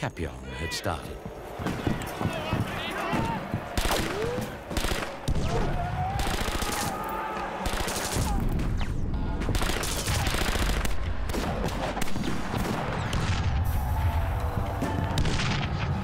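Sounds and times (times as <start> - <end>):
rifles and machine guns firing: 3.7 - 13.5.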